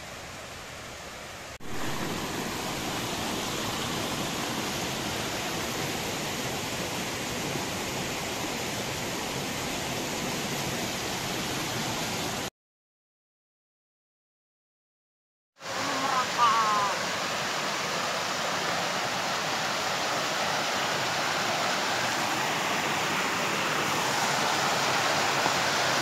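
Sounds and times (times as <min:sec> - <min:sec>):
running water rushing: 0:00.0 - 0:12.5, 0:15.6 - 0:26.0.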